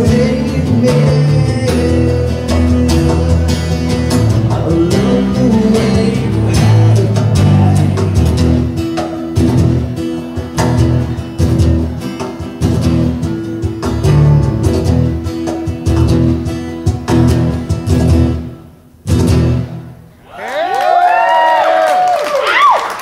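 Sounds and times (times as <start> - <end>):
cajon beats: 0.0 - 19.8
acoustic guitars strummed: 0.0 - 20.1
audience cheering and whistling: 20.2 - 23.0.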